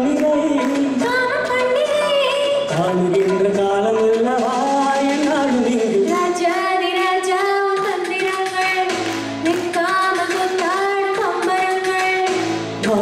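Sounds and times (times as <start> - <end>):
karaoke backing track: 0.0 - 13.0
woman singing into a microphone: 0.6 - 2.8, 6.0 - 13.0.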